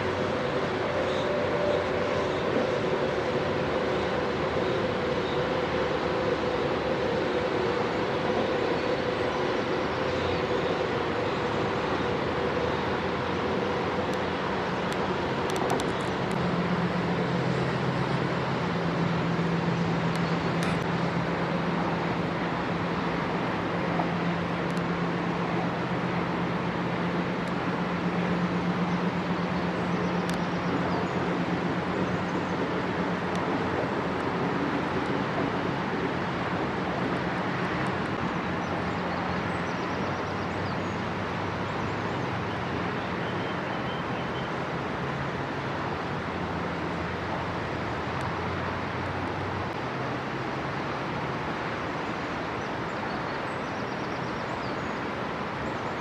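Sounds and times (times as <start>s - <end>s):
electric train running: 0.0s - 29.3s
steady low hum: 0.0s - 53.6s.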